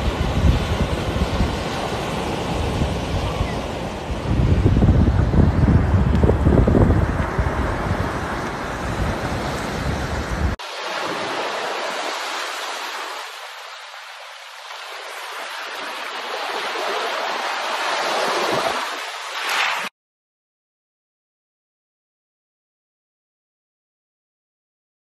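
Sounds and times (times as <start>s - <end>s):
wind rumble on microphone: 0.0s - 10.6s
surf on pebble beach: 0.0s - 19.9s.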